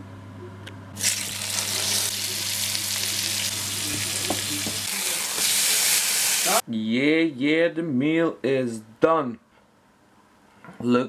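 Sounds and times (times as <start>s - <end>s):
steak sizzling in frying pan: 1.0s - 6.6s.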